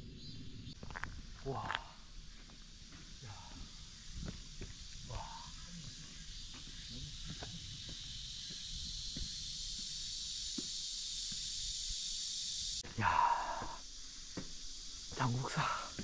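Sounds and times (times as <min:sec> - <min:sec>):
cicadas chorus: 0:00.0 - 0:16.0
footsteps: 0:00.8 - 0:11.5
heavy breath: 0:03.2 - 0:03.8, 0:13.0 - 0:13.8.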